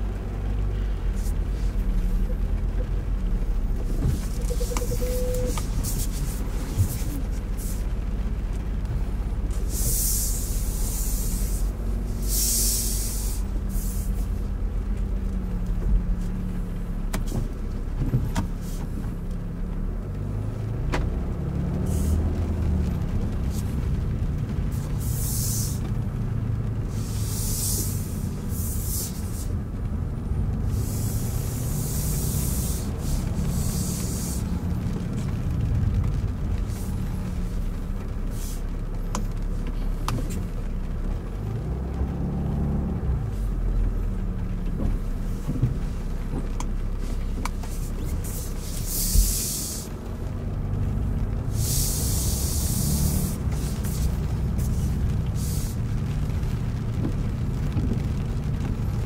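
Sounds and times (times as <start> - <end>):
road and tyre rumble: 0.0 - 59.0
tyre spray hiss: 9.5 - 14.4, 24.7 - 25.8, 26.9 - 29.6, 30.7 - 34.8, 38.3 - 38.7, 47.0 - 50.0, 51.4 - 55.8.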